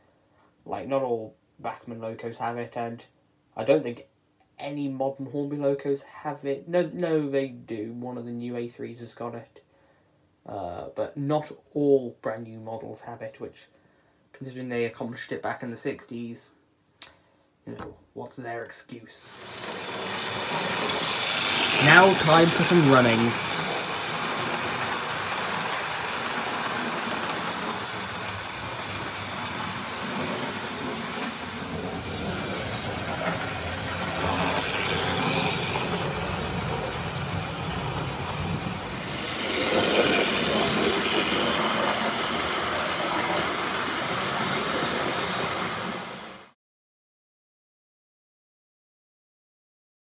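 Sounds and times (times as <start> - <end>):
model train running on track: 19.3 - 46.5.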